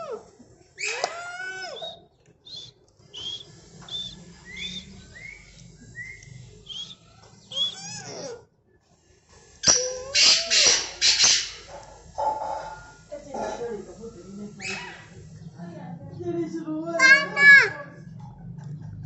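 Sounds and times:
birds whistling chirps: 0:00.8 - 0:08.2, 0:09.6 - 0:11.7, 0:14.4 - 0:15.6
birds harsh rough calls: 0:09.6 - 0:13.7, 0:14.5 - 0:15.5.

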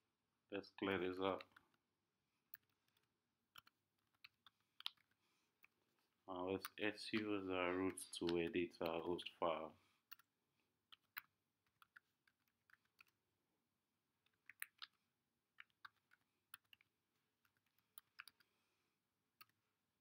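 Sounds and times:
computer keyboard typing: 0:10.9 - 0:13.2, 0:15.6 - 0:18.4.

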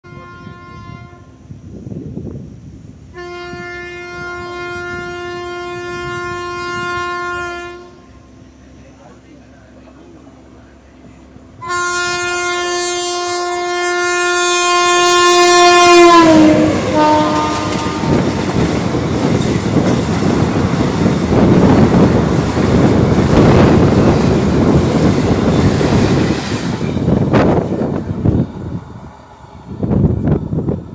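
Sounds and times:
train horn blast: 0:00.0 - 0:01.4, 0:03.1 - 0:08.1, 0:11.6 - 0:18.5
train coaches clattering on rails: 0:16.1 - 0:28.4.

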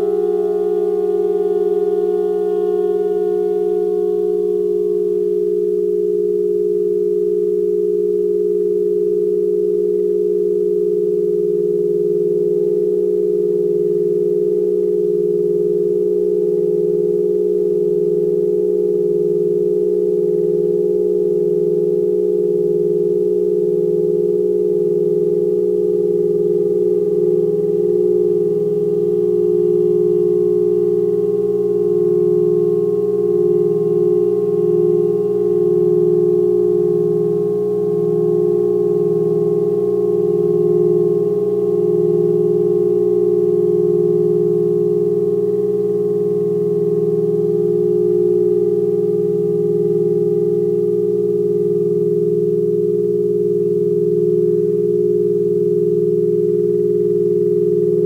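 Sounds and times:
saxophone drone with electronics: 0:00.0 - 0:06.4, 0:27.4 - 0:58.0.

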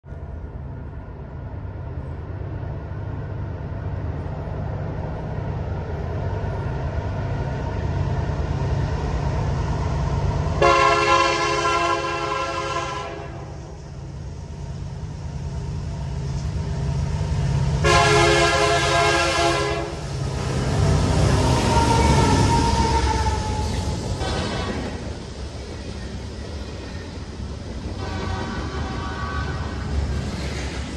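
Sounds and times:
freight train rumble: 0:00.0 - 0:30.9
train air horn: 0:10.6 - 0:13.8, 0:17.8 - 0:20.1, 0:21.6 - 0:25.0, 0:28.0 - 0:29.9.

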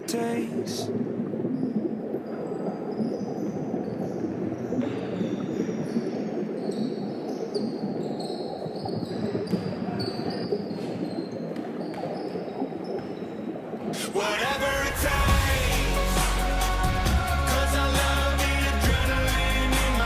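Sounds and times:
sneakers squeaking: 0:08.2 - 0:13.2.

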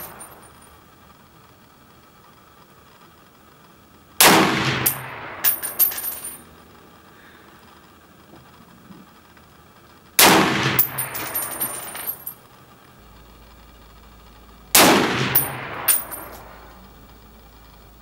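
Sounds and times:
rifle shots: 0:00.0 - 0:00.7, 0:04.2 - 0:06.4, 0:10.2 - 0:12.3, 0:14.7 - 0:16.7
rolling echo with metallic ringing: 0:00.0 - 0:00.8, 0:04.4 - 0:06.6, 0:10.4 - 0:12.4, 0:14.8 - 0:16.9.

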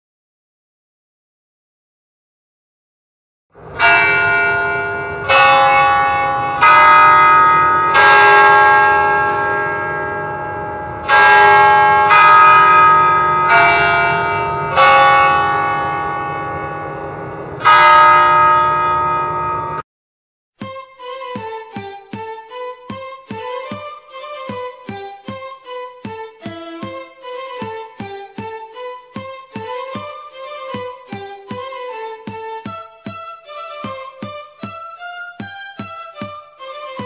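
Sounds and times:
church bells ringing: 0:03.6 - 0:19.8.

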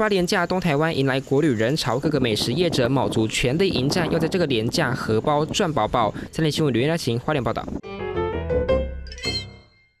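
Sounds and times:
bright chime ringing: 0:09.0 - 0:10.0.

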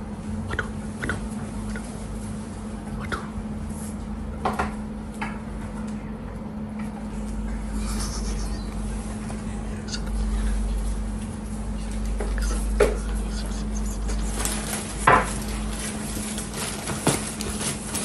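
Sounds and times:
low hum: 0:00.0 - 0:05.1, 0:06.5 - 0:16.4.

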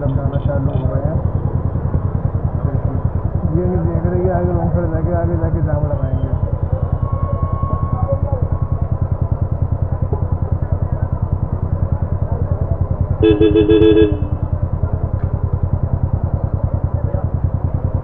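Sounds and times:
motorcycle engine idling: 0:00.0 - 0:07.0, 0:08.4 - 0:18.0
vehicle horn: 0:13.2 - 0:14.6.

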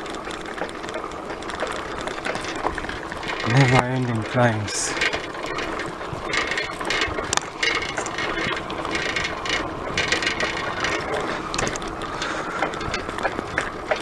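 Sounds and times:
bicycle ticking and rattling: 0:00.0 - 0:14.0
steady rushing noise: 0:00.0 - 0:14.0.

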